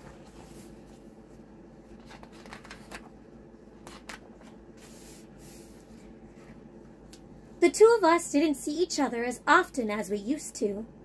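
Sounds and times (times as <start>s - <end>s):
book pages flipping: 0.0s - 3.2s, 3.8s - 5.2s.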